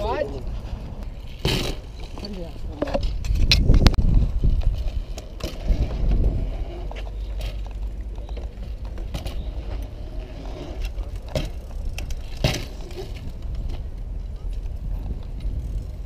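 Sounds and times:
bike tyres rolling on concrete: 0.0s - 16.0s
bike knocking on concrete: 11.0s - 13.8s.

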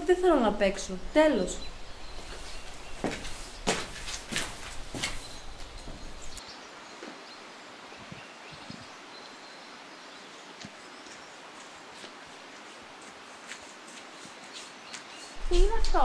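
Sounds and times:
footsteps on grass: 2.0s - 6.4s, 11.1s - 16.0s
light rustling: 2.1s - 6.4s
footsteps on hard floor: 2.2s - 6.4s, 12.0s - 16.0s.

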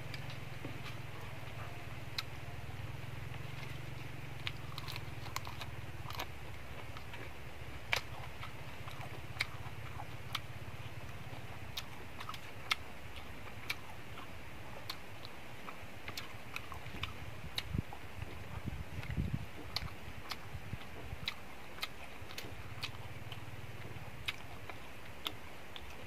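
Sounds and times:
low hum: 0.0s - 15.0s
person chewing crunchy food: 0.0s - 26.0s.

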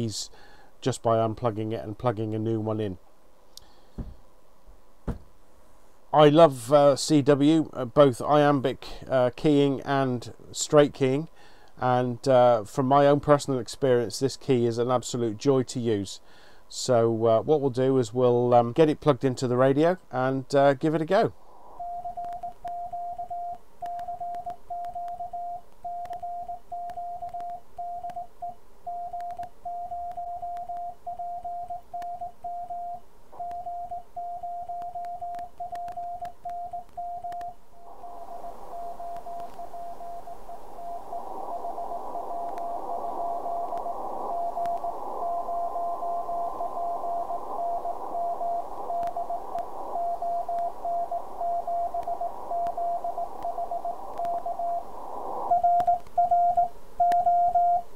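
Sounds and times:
morse code beeps: 21.8s - 37.6s, 38.4s - 43.7s, 44.3s - 54.9s, 55.5s - 57.9s
radio receiver hiss: 37.3s - 57.9s.

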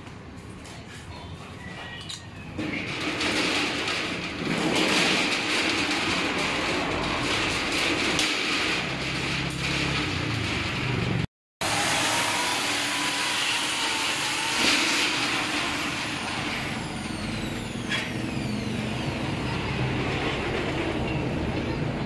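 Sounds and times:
street traffic noise: 0.0s - 14.5s, 15.1s - 22.0s.

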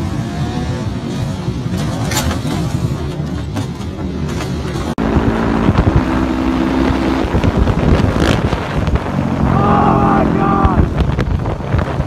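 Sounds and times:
motorcycle engine running: 2.5s - 12.0s
wind buffeting microphone: 4.8s - 12.0s.

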